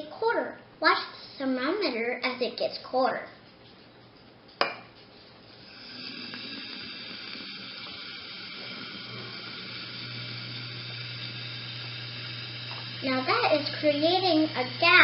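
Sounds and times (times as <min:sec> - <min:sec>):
reaction fizzing in glass flask: 0:04.6 - 0:15.0.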